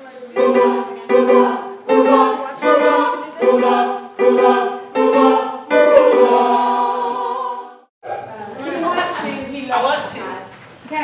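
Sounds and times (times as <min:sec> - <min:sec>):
group singing chords: 0:00.4 - 0:07.9.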